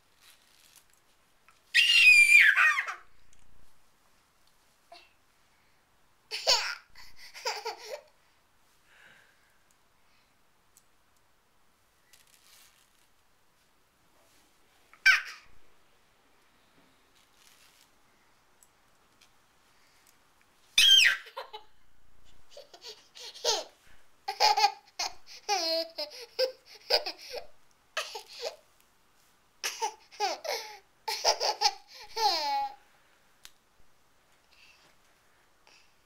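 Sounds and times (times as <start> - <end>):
toddler boy laughing: 2.1 - 3.1, 6.3 - 8.1, 15.0 - 15.5, 20.8 - 21.7, 22.5 - 28.6, 29.6 - 32.8.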